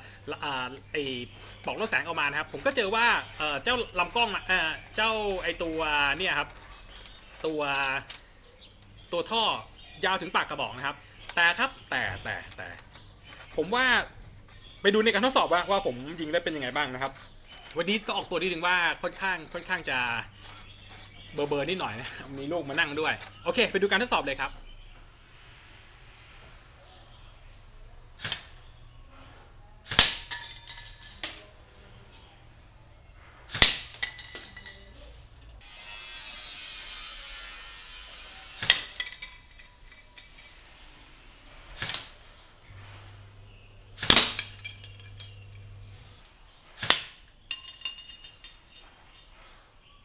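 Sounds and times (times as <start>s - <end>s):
airsoft rifle shots: 28.2s - 28.6s, 29.8s - 30.3s, 44.0s - 44.6s, 46.8s - 47.2s.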